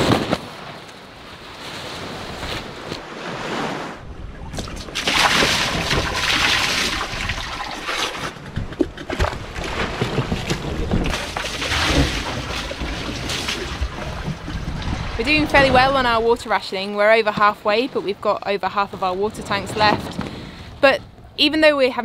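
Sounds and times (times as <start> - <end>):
wind and sea rushing: 0.0 - 21.9
water splashing from bucket: 4.4 - 16.0.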